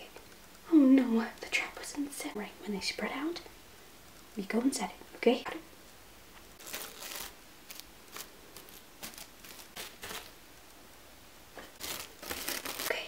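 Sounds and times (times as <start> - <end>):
toy figures rustling and scuffing: 6.6 - 10.4, 11.6 - 13.0.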